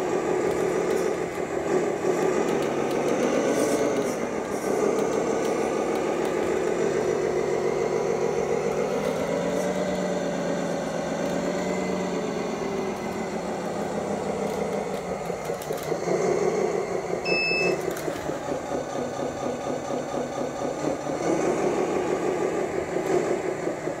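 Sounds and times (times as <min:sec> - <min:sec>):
simulated diesel engine revving: 0:00.0 - 0:24.0
short beep: 0:17.3 - 0:17.8.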